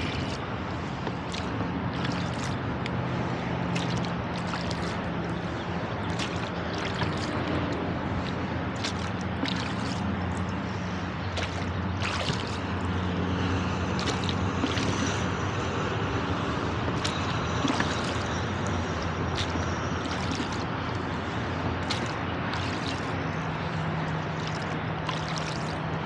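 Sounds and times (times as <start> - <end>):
highway traffic drone: 0.0 - 26.0
oars splashing in water: 0.0 - 26.0
water dripping: 3.7 - 10.6, 11.3 - 12.7, 13.9 - 15.2, 16.9 - 25.8.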